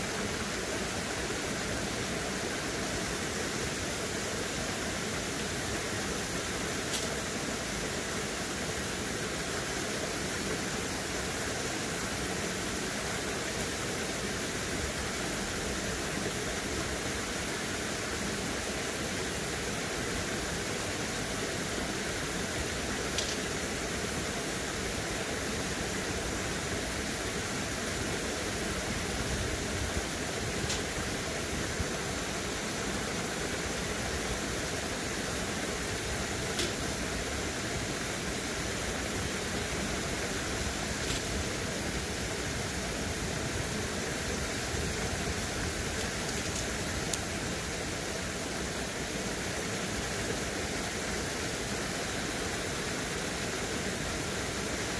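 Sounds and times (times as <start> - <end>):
water rushing from waterfall: 0.0 - 54.9.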